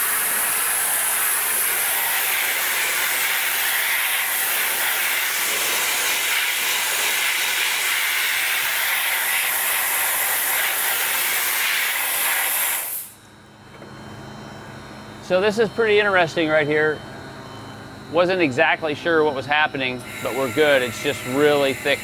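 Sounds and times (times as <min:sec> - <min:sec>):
dry ice blasting hiss: 0:00.0 - 0:13.2, 0:20.0 - 0:22.0.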